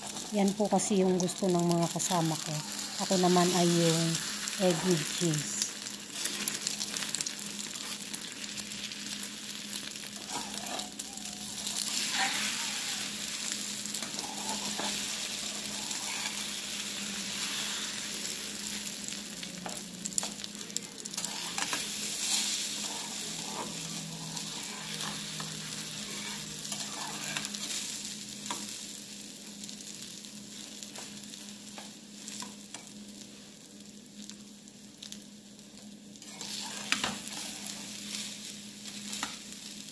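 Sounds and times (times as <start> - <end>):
egg sizzling in hot oil: 0.0 - 39.9
metal spatula scraping pan: 21.2 - 27.6.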